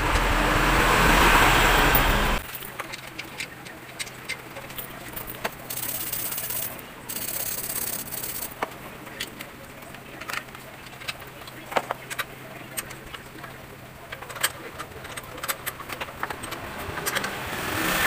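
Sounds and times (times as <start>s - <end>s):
loud rumbling noise: 0.0s - 2.4s
tools tapping on engine parts: 1.9s - 17.4s.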